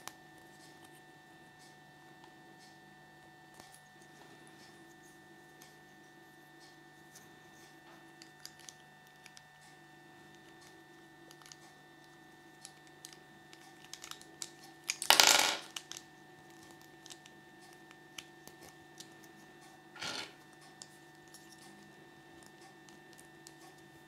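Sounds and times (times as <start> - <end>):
plastic toy parts clicking: 13.0 - 16.0.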